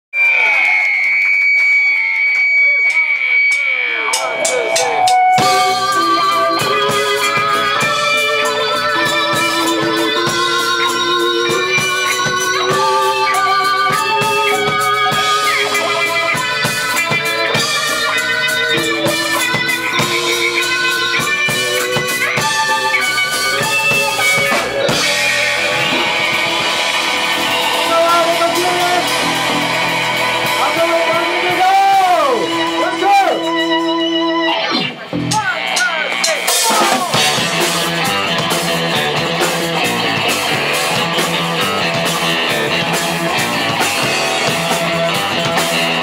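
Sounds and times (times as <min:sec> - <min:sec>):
cymbals: 0:02.8 - 0:33.9
electric organ: 0:03.2 - 0:35.3, 0:37.1 - 0:46.0
live jazz band playing: 0:04.2 - 0:46.0.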